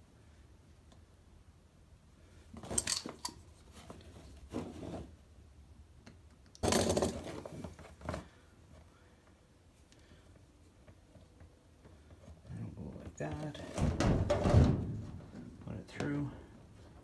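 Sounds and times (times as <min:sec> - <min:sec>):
hand handling scrapes and rustles: 0:02.3 - 0:05.4.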